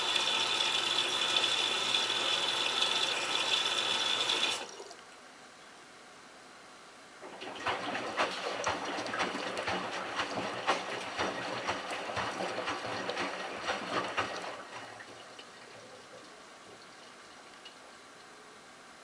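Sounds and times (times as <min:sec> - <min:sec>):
water and laundry sloshing: 0:07.2 - 0:17.7.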